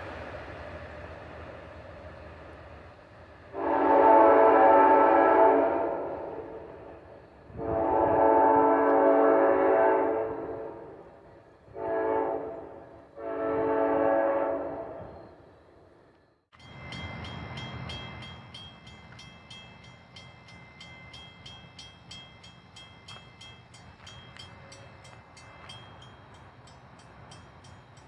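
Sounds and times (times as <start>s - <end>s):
locomotive horn blasts: 3.5s - 6.8s, 7.5s - 11.0s, 11.7s - 15.0s
grade-crossing bell ringing: 16.5s - 28.0s.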